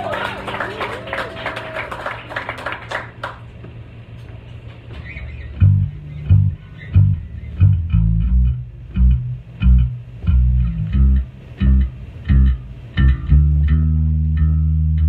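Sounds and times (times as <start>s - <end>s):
faint low hum: 0.0s - 15.0s
electric bass plucked notes: 5.4s - 15.0s.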